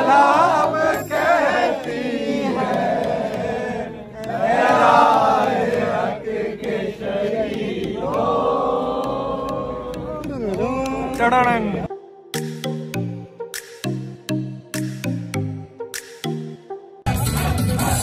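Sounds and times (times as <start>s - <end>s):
men chanting in unison: 0.0s - 11.9s.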